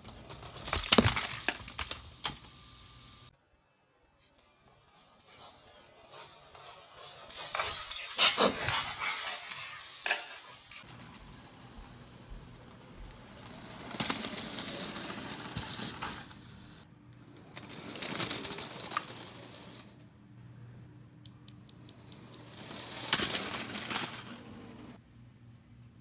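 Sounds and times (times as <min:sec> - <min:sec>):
plastic pieces clattering: 0:00.0 - 0:02.5
toy train running on track: 0:00.0 - 0:03.3, 0:04.4 - 0:19.9, 0:21.9 - 0:25.0.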